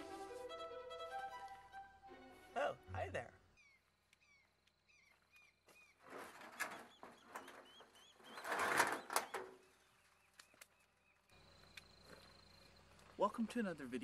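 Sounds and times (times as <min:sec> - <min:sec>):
small birds chirping: 0:03.0 - 0:14.0.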